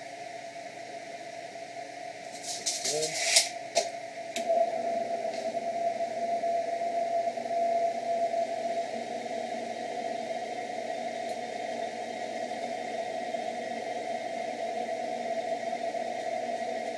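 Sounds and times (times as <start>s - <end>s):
drill press motor humming: 3.6s - 16.9s.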